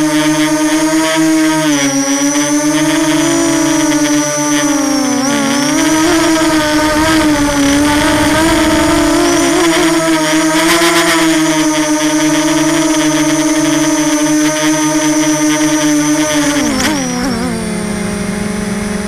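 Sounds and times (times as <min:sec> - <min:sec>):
quadcopter motors whining: 0:00.0 - 0:19.0
rush of air: 0:05.9 - 0:10.0.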